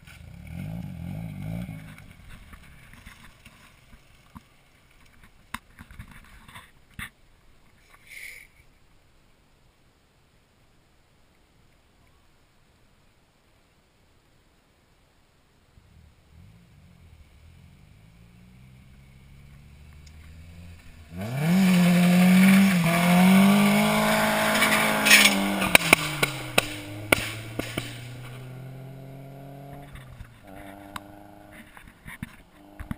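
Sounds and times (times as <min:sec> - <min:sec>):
faint second engine: 0:15.8 - 0:32.9
car engine at high revs: 0:16.1 - 0:32.9.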